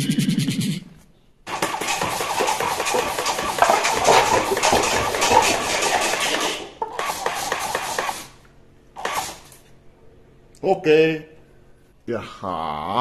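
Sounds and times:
paper cups tumbling: 0:01.5 - 0:06.9
toy blaster clicking shots: 0:04.7 - 0:08.3, 0:09.0 - 0:09.5.

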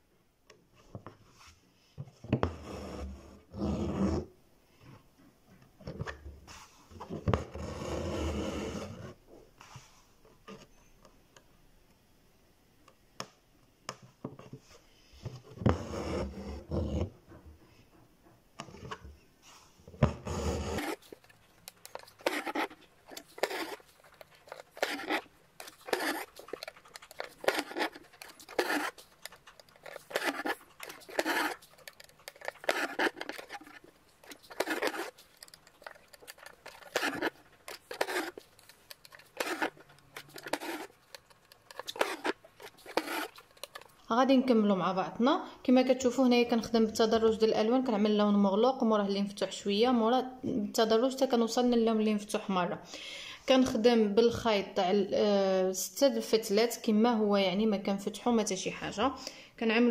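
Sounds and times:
thread rasping through fabric: 0:20.0 - 0:44.0.

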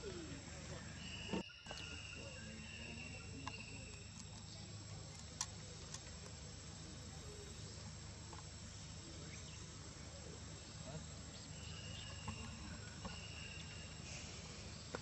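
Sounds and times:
high-pitched insect chorus: 0:00.0 - 0:05.1, 0:06.3 - 0:15.0.

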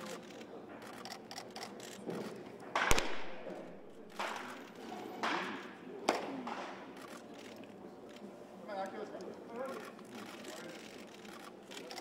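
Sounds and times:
baseballs smacking into mitts: 0:02.7 - 0:04.6, 0:05.2 - 0:06.9.

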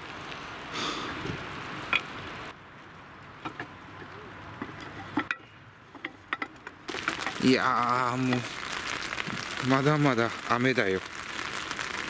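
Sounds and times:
rain pattering on a tent: 0:00.0 - 0:03.4, 0:06.9 - 0:12.0.

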